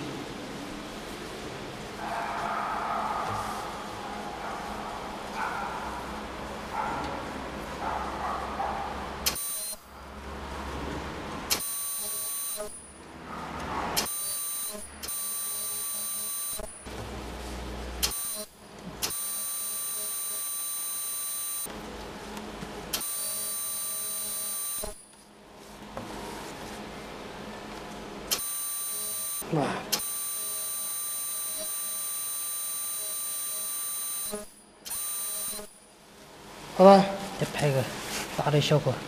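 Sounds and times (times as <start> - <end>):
high-pitched machine whine: 14.0 - 16.9, 18.0 - 21.7, 23.0 - 25.1, 28.3 - 35.8.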